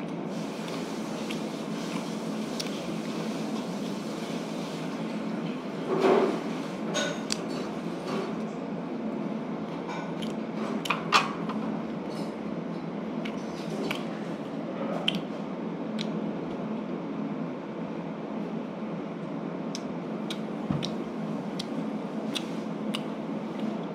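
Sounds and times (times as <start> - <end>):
fan-like background noise: 0.0 - 23.9
utensils clinking on dishes: 6.9 - 7.7
chewing: 10.1 - 10.9, 13.2 - 16.2, 19.7 - 23.9.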